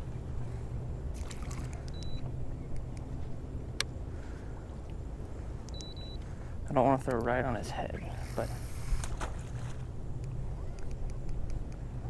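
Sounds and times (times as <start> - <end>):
wind and water rumble: 0.0 - 12.0
light clicks: 5.6 - 6.3, 10.2 - 11.8.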